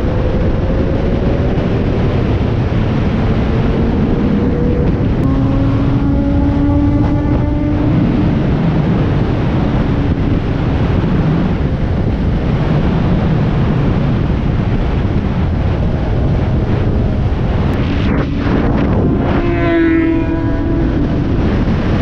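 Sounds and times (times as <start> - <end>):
motorcycle engine running: 0.0 - 12.4
wind noise on microphone: 0.0 - 22.0.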